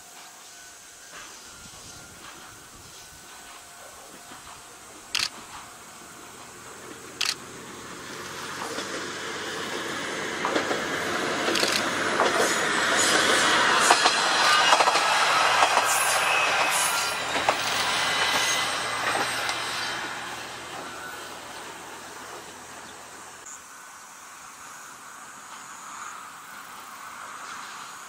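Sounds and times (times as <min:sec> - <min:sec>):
diesel railcar passing: 0:00.0 - 0:28.0
train wheels clacking: 0:00.1 - 0:07.5, 0:08.2 - 0:22.6.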